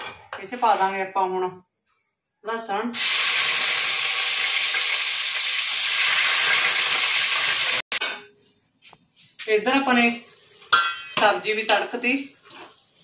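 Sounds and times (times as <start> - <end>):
garlic sizzling in hot oil: 3.0 - 8.0, 9.7 - 13.0
ladle stirring in pan: 12.4 - 13.0.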